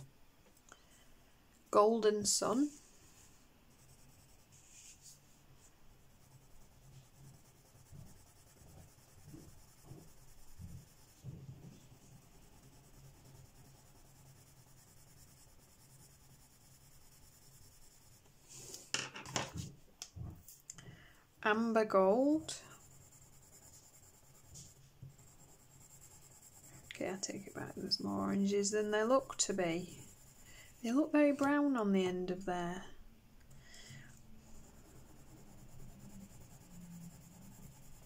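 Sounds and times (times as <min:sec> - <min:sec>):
pencil shading on paper: 0:02.4 - 0:18.7, 0:22.2 - 0:31.6, 0:34.0 - 0:38.0.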